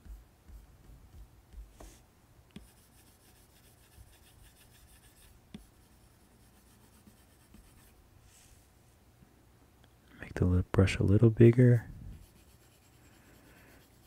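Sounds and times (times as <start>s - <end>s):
stylus scratching on tablet screen: 0.0s - 2.0s, 2.6s - 8.0s, 12.1s - 14.0s.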